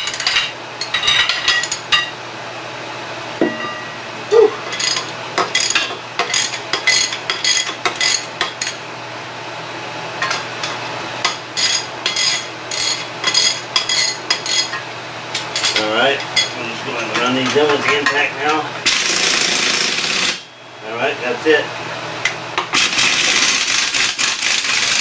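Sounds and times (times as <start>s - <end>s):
air impact wrench whir: 18.8s - 20.4s, 22.7s - 25.0s.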